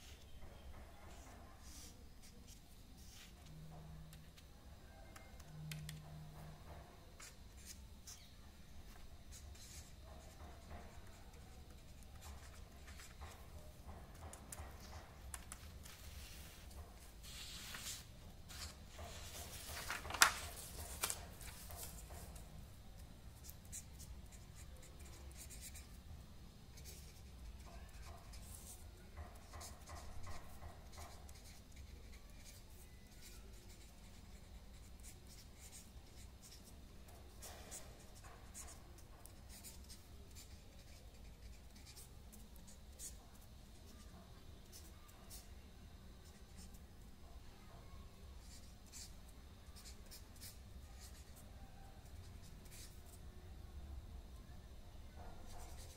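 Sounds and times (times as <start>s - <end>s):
pen scratching on paper: 8.9s - 19.8s, 25.0s - 25.9s, 26.7s - 43.2s, 49.8s - 51.4s, 52.6s - 53.1s, 55.5s - 55.9s.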